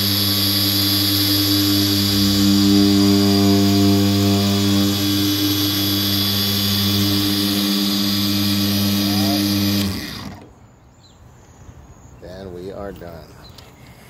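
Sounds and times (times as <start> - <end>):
polisher running and winding down: 0.0 - 10.5.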